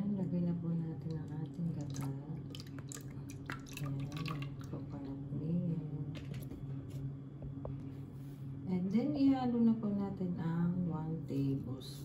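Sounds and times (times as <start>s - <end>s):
liquid pouring into a bowl: 1.0s - 5.0s.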